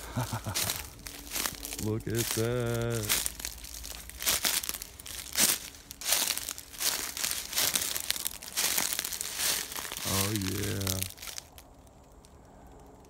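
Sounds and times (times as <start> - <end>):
dry leaves crunching and rustling: 0.0 - 12.4.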